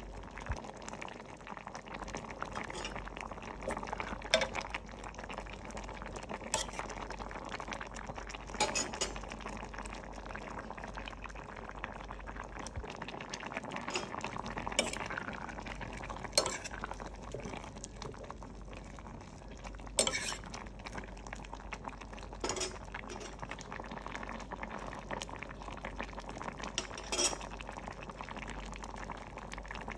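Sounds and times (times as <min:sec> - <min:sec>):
curry bubbling in a pot: 0:00.0 - 0:29.9
ladle clinking against pot: 0:26.8 - 0:27.4.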